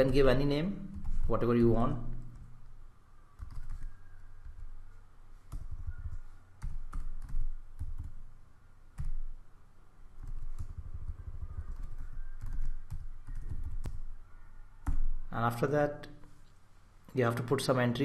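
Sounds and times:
typing on keyboard: 0:03.4 - 0:04.8, 0:05.5 - 0:08.2, 0:09.0 - 0:09.3, 0:10.2 - 0:14.1.

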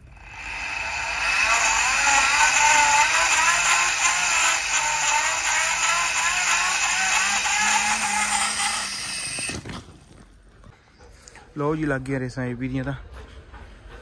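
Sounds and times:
winch whirring: 0:00.0 - 0:09.6.

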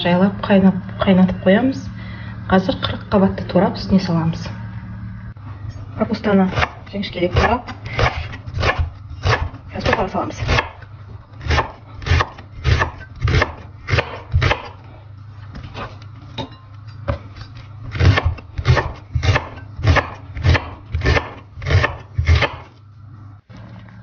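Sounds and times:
knife chopping cabbage on wooden board: 0:07.4 - 0:10.8, 0:11.4 - 0:14.7, 0:17.9 - 0:22.7.

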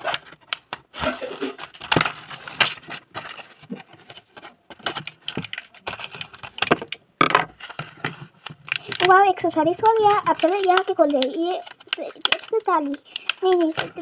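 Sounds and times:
plastic packaging crinkling: 0:00.0 - 0:14.0
scissors cutting plastic packaging: 0:07.6 - 0:14.0.

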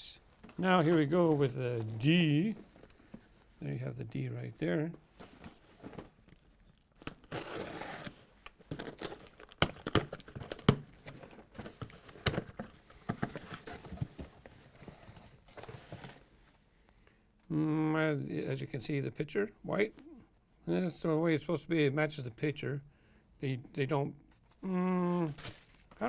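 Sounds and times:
cardboard rustling: 0:04.7 - 0:06.4, 0:07.0 - 0:16.4, 0:25.2 - 0:26.0
plastic wrap crinkling and tearing: 0:06.1 - 0:12.5, 0:25.0 - 0:26.0.

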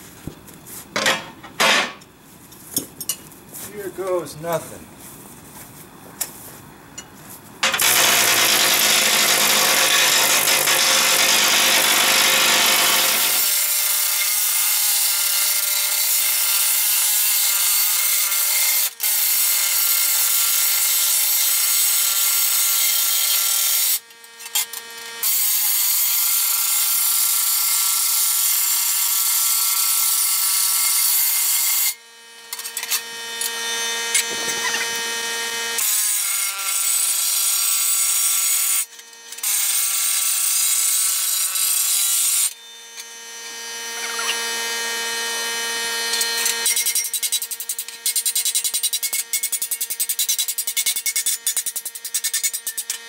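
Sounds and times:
pneumatic air chisel hammering steel: 0:07.6 - 0:35.1, 0:35.8 - 0:43.1, 0:46.1 - 0:53.0.

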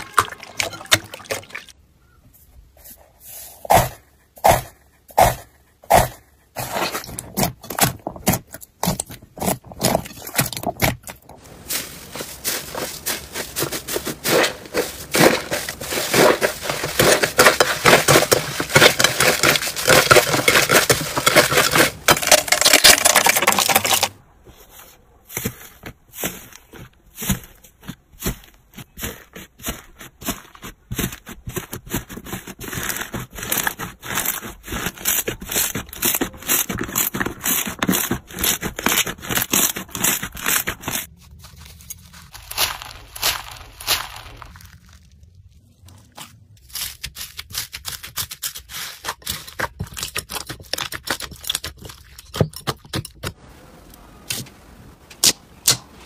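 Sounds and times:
hand pushing into foam beads: 0:03.6 - 0:24.1, 0:24.7 - 0:45.1
hands kneading crackling slime: 0:25.3 - 0:49.0.

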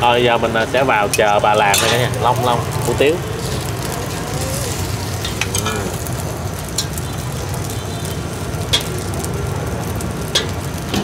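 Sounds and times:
faint sizzling: 0:00.6 - 0:11.0
metal utensil clinking on pan: 0:01.1 - 0:02.2, 0:08.7 - 0:08.9, 0:10.3 - 0:10.6.

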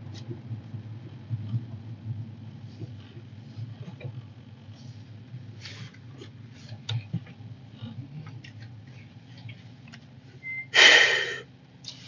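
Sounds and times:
faint clicks and taps: 0:06.2 - 0:07.4.

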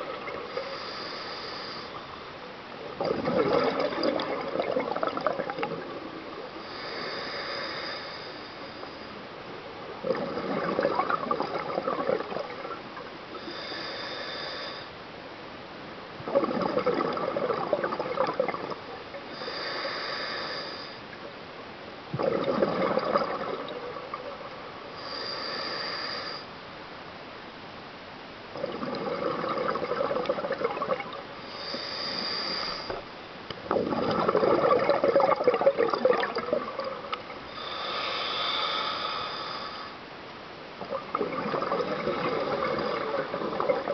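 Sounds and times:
regulator hiss on inhale: 0:00.4 - 0:02.4, 0:06.4 - 0:09.3, 0:13.3 - 0:15.0, 0:19.3 - 0:21.2, 0:24.9 - 0:26.6, 0:31.4 - 0:33.1, 0:37.5 - 0:40.1
gurgle of exhaled bubbles: 0:02.8 - 0:06.8, 0:09.9 - 0:13.7, 0:16.2 - 0:19.1, 0:22.1 - 0:24.5, 0:28.6 - 0:33.0, 0:33.6 - 0:37.9, 0:40.8 - 0:43.9.

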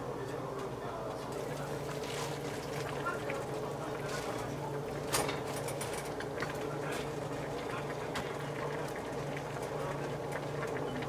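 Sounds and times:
broth simmering in a pan: 0:00.9 - 0:11.0.

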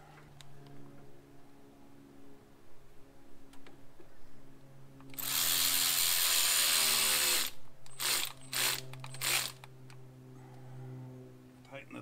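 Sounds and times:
cordless power driver running: 0:05.1 - 0:09.7.

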